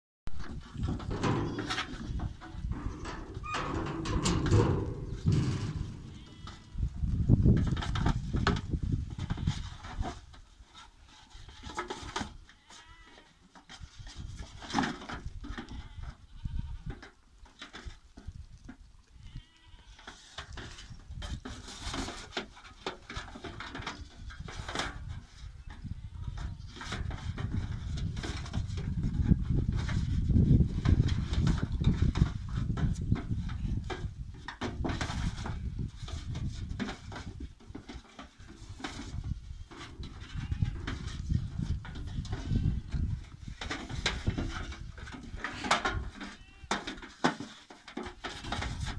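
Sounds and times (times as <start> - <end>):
hooves knocking on metal wheelbarrow: 0.3 - 10.2, 19.4 - 48.9
hooves knocking on metal: 0.6 - 8.7
goat kids bleating: 1.1 - 6.9, 12.4 - 13.7, 15.6 - 17.0, 19.2 - 20.4, 40.1 - 41.0, 45.4 - 47.0.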